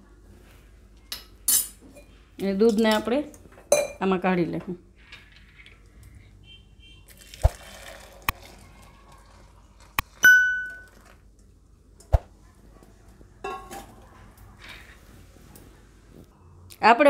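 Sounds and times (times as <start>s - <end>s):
milk pouring: 7.1s - 11.4s.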